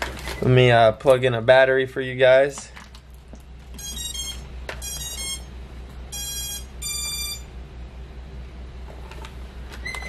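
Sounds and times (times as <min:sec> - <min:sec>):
drone motors beeping: 0:03.8 - 0:05.5, 0:06.1 - 0:07.5.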